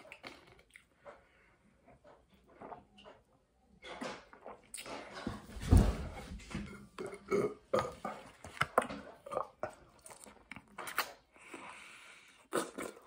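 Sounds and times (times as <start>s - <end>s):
man burping: 6.9s - 8.1s
chewing mouth noises: 7.8s - 13.0s.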